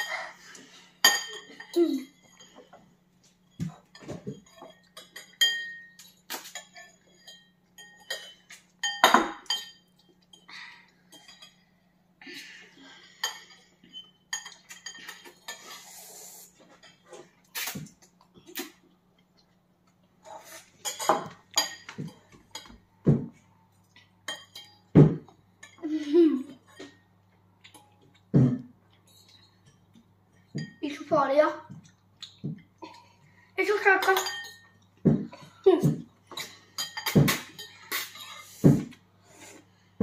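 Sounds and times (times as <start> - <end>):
cutlery clinking on ceramic bowls: 1.0 - 11.8, 13.0 - 15.8, 20.8 - 23.2, 23.8 - 28.3, 28.9 - 31.0, 33.7 - 38.9.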